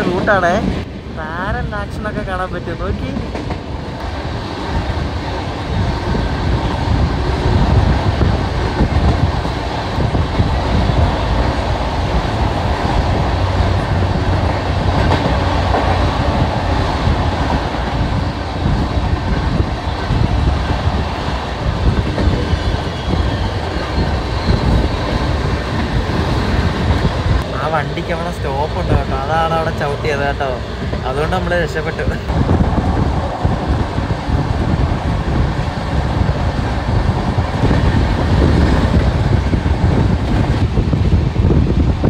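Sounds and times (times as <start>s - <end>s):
train wheels rumbling and rattling: 0.0s - 42.0s.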